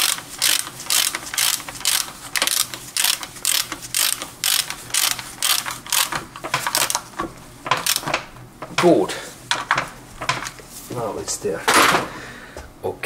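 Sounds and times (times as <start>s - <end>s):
ratchet wrench clicking: 0.0s - 7.0s, 7.8s - 8.1s.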